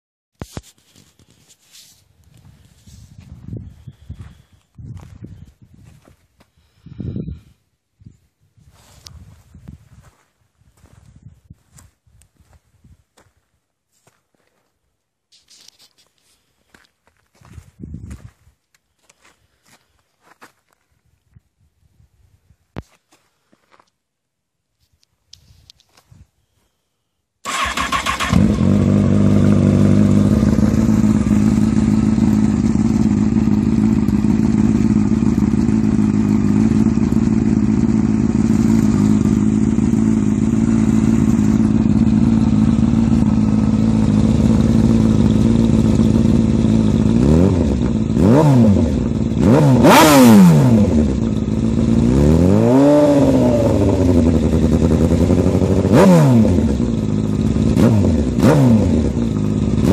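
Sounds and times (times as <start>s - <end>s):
motorcycle engine idling and revving: 2.4s - 6.0s, 27.5s - 59.9s.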